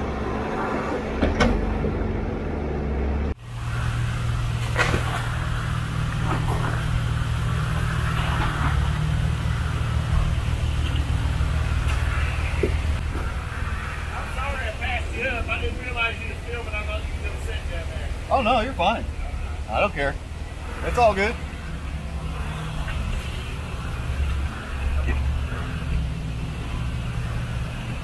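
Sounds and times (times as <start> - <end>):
engine running steadily: 0.0 - 28.0.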